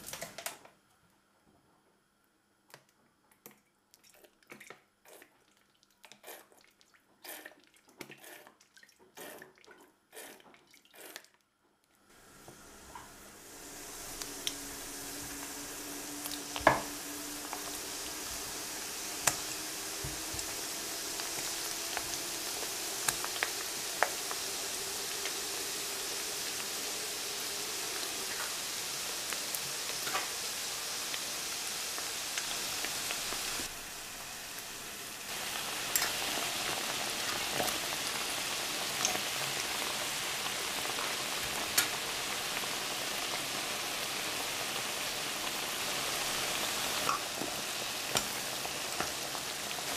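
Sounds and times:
doughnuts sizzling in hot oil: 12.1s - 49.9s
oil pops and crackles: 19.2s - 20.6s.

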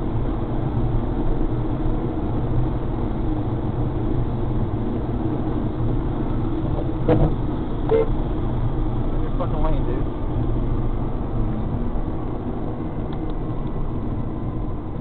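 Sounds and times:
car road and engine noise: 0.0s - 15.0s
car horn toot: 7.9s - 8.2s.

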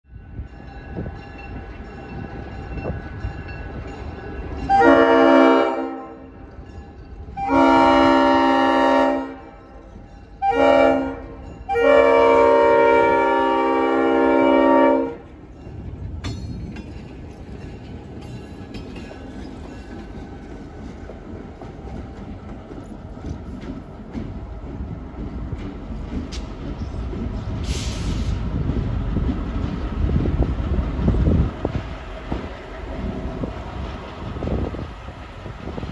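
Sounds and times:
locomotive horn blasts: 4.7s - 6.4s, 7.4s - 9.8s, 10.4s - 15.3s
diesel engine and wheels rumbling: 15.2s - 35.9s.

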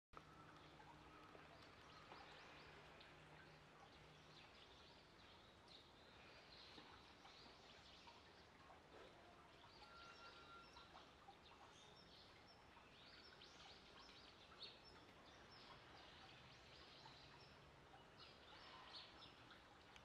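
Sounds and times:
faint high bird chirps: 6.6s - 20.0s.

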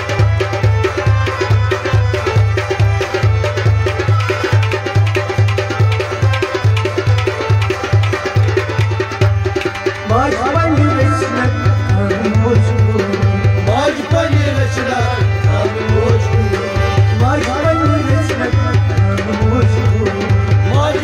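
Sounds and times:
clay pot drum and frame drum rhythm: 0.0s - 21.0s.

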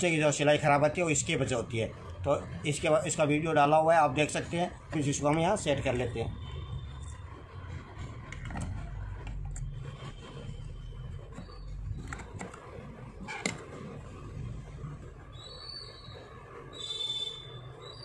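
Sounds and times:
bird chirps: 15.3s - 16.2s, 16.8s - 18.0s.

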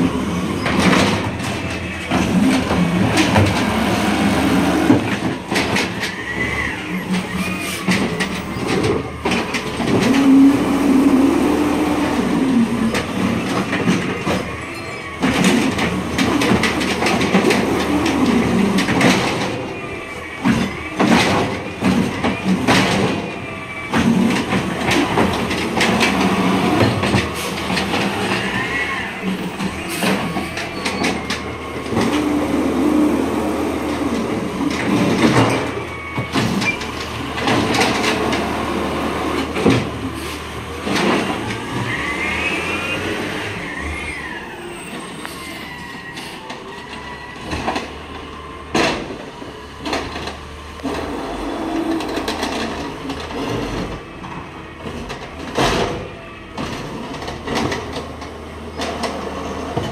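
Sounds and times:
carts banging against hopper: 0.0s - 43.6s, 46.1s - 59.9s
truck engine humming: 0.0s - 45.6s.

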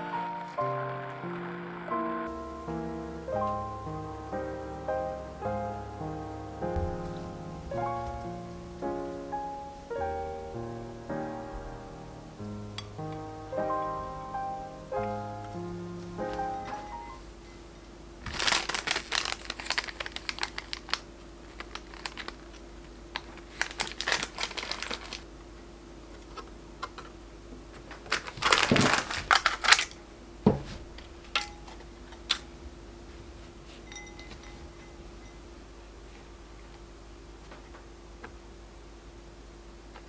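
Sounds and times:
faint steady hum: 0.0s - 40.0s
gelatin sheets crinkling: 18.2s - 25.3s, 27.8s - 30.0s.

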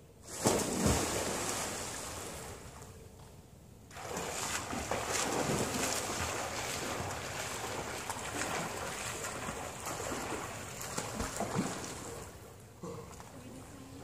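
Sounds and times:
swimmer splashing in pool water: 3.9s - 12.5s.

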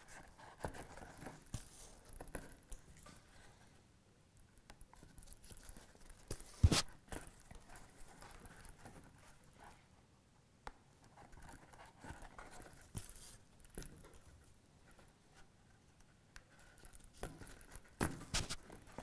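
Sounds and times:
leather being handled: 0.0s - 3.3s, 5.0s - 9.8s, 11.0s - 14.3s
thread pulled through leather: 5.1s - 9.8s.

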